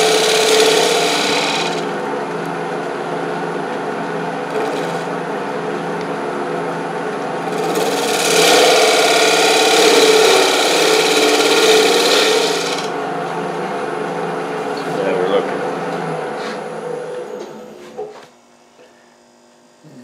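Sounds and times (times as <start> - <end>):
tool scraping spinning wood: 0.0 - 2.0, 7.5 - 12.9
wood lathe humming: 0.0 - 2.3, 7.4 - 14.0.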